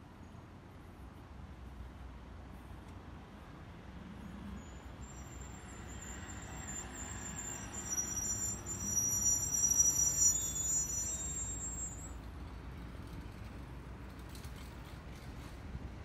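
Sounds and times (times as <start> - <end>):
heavy vehicle engine rumble: 4.6 - 16.0.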